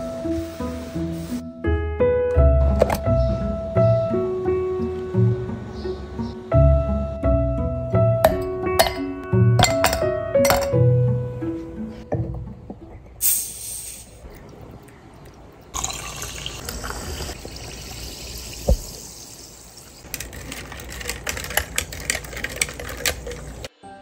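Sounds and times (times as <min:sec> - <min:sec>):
spoon clinking against glass: 0:08.3 - 0:10.8
bottle cap hiss: 0:13.2 - 0:14.2, 0:18.4 - 0:19.9
carbonated drink fizzing: 0:13.2 - 0:23.7.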